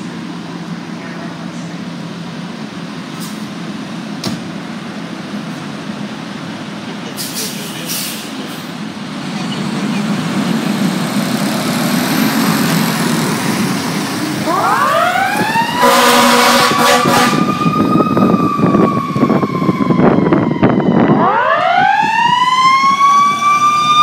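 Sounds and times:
diesel engines running: 0:00.0 - 0:24.0
short sharp hisses: 0:07.2 - 0:08.4.

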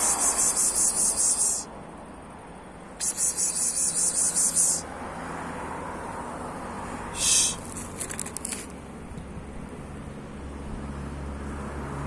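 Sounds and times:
insect trilling: 0:00.0 - 0:01.7, 0:03.0 - 0:04.9.

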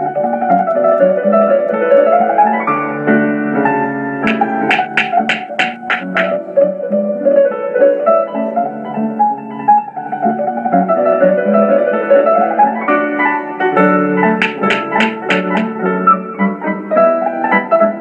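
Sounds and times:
keyboard melody with accompaniment: 0:00.0 - 0:18.0
crisp tapping beat: 0:04.3 - 0:06.4, 0:14.4 - 0:15.8.

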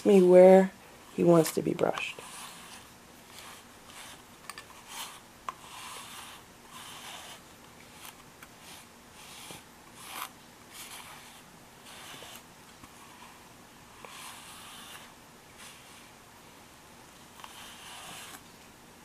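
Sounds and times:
brush stroking through fur: 0:00.0 - 0:16.1.

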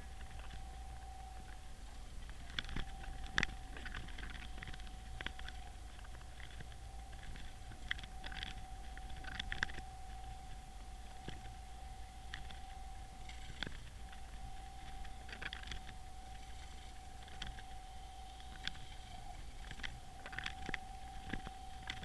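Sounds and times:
faint steady whine: 0:00.0 - 0:22.0
small clicks and ticks: 0:00.0 - 0:22.0
underwater low hum: 0:00.0 - 0:22.0.

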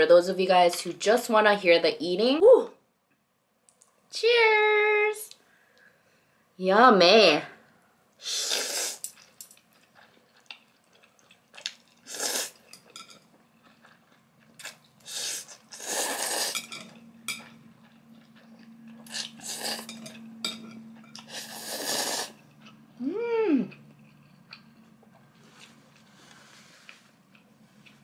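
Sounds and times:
noodle slurping: 0:08.2 - 0:09.2, 0:12.0 - 0:12.7, 0:15.0 - 0:16.7, 0:21.2 - 0:22.4
wet chewing: 0:09.0 - 0:20.3.

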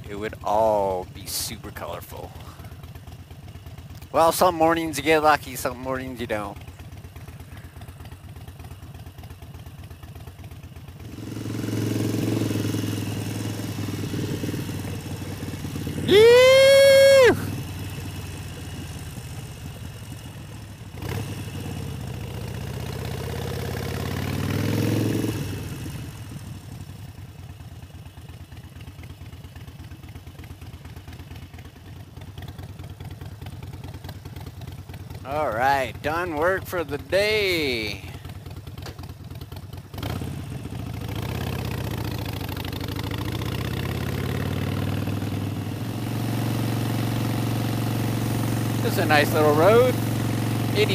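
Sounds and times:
motorcycle engine running: 0:00.0 - 0:50.9.

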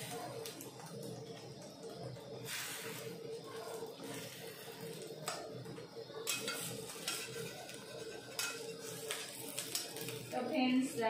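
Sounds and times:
steady hum: 0:00.0 - 0:11.0
metal spatula scraping a pan: 0:06.2 - 0:10.1.

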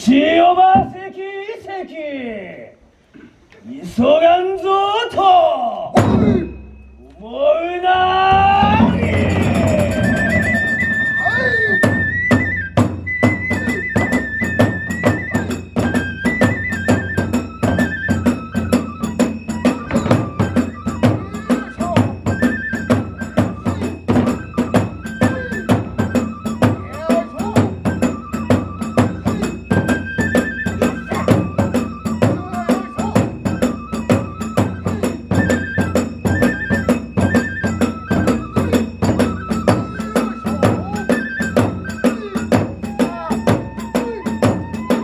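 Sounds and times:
bamboo flute playing high phrases: 0:06.5 - 0:45.0
fast drum beat: 0:08.3 - 0:33.6.

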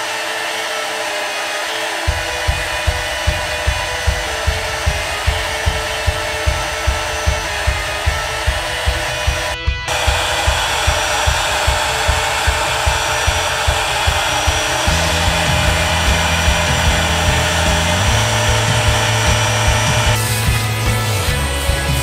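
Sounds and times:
router spindle hissing: 0:00.0 - 0:20.4
background music with bass line: 0:13.6 - 0:22.0.

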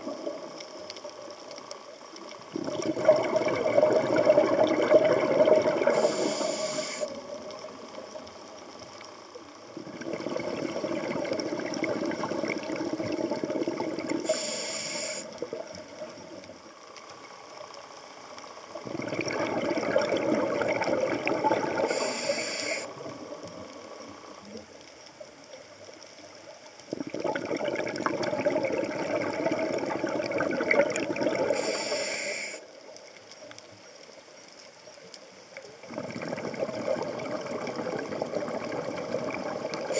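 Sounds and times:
diver exhaling bubbles: 0:02.5 - 0:07.0, 0:09.8 - 0:15.7, 0:18.8 - 0:23.3, 0:26.9 - 0:31.7, 0:35.8 - 0:39.9
regulator hiss: 0:05.8 - 0:08.3, 0:14.1 - 0:15.5, 0:21.7 - 0:22.9, 0:31.5 - 0:32.9.

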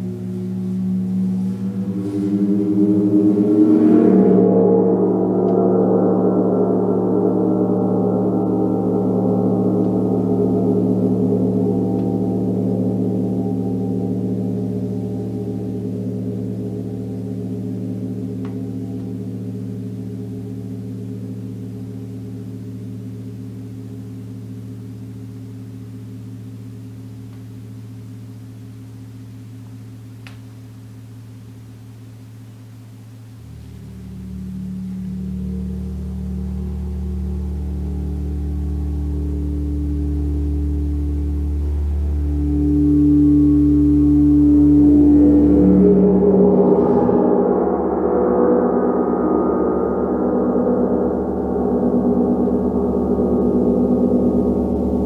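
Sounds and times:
gong ringing: 0:00.0 - 0:21.9.

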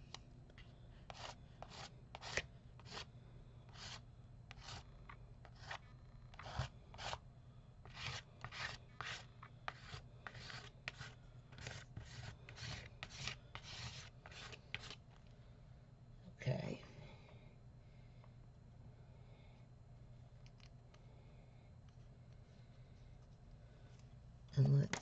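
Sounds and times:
fingers rubbing paste on paper: 0:01.1 - 0:03.1, 0:03.7 - 0:04.8, 0:05.4 - 0:07.2, 0:07.8 - 0:15.0.

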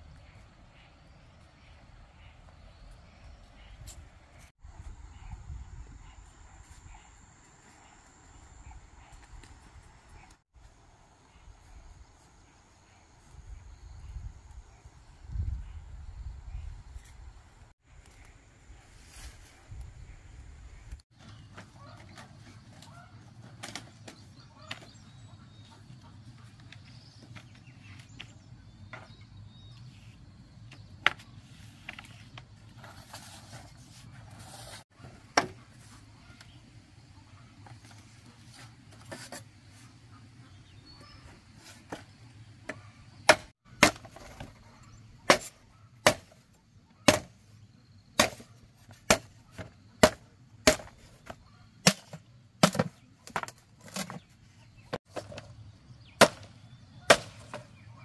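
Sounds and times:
machete chopping bamboo: 0:43.3 - 0:44.4, 0:45.3 - 0:46.4, 0:47.1 - 0:47.3, 0:48.2 - 0:51.0, 0:51.8 - 0:54.2, 0:56.2 - 0:56.5, 0:57.1 - 0:57.6.

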